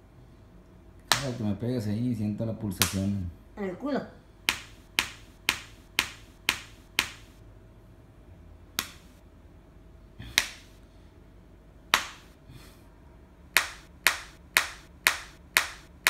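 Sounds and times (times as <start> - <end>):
open-hand slaps on body: 1.1 - 1.4, 4.5 - 7.3, 8.8 - 9.1, 10.3 - 10.7, 11.9 - 12.3, 13.6 - 15.9.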